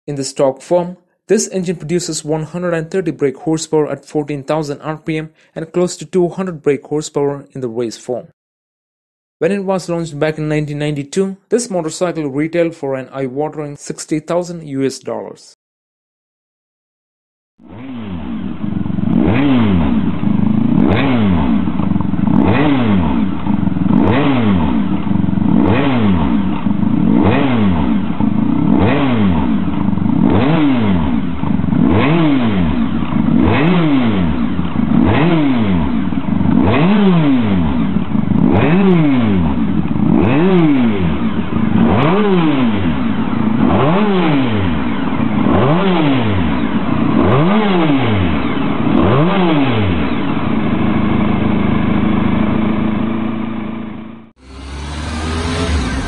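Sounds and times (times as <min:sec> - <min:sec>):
motorcycle engine revving: 0:17.6 - 0:56.0.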